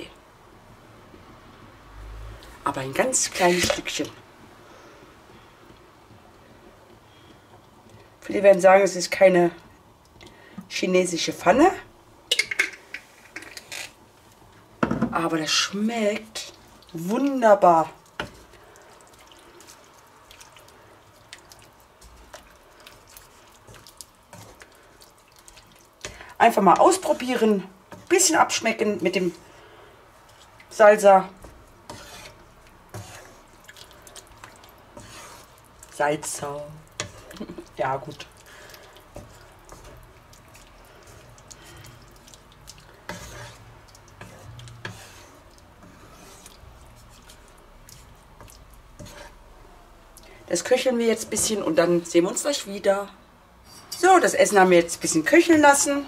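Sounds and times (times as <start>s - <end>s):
spatula stirring vegetables in pan: 10.0s - 52.7s
simmering sauce popping: 12.2s - 50.4s.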